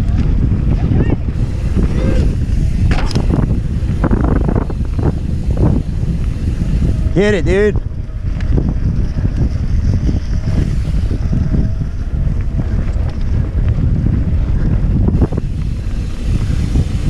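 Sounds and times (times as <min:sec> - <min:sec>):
tyres rumbling on rough ground: 0:00.0 - 0:17.0
wind buffeting microphone: 0:00.0 - 0:17.0
bike knocks and rattles: 0:01.3 - 0:07.0.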